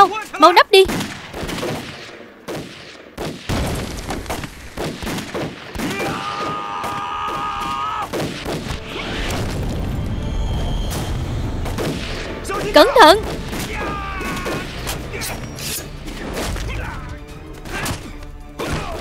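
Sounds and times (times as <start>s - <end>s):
gunfire from rifles and pistols: 0.8s - 8.8s.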